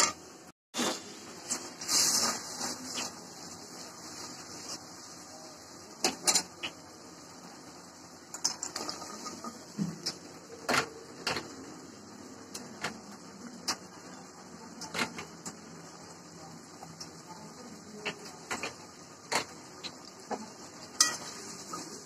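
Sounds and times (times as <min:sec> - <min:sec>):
utensils clattering on metal pan: 0:06.0 - 0:06.8, 0:08.3 - 0:11.6, 0:20.9 - 0:22.0.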